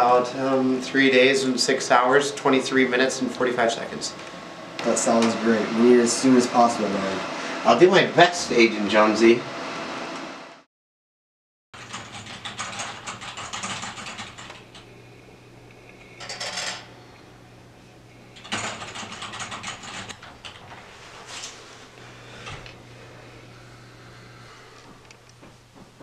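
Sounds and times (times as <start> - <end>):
steady low hum: 0.0 - 10.6, 11.8 - 26.0
rapid mechanical clicking and rattling: 11.8 - 14.8, 18.4 - 20.8.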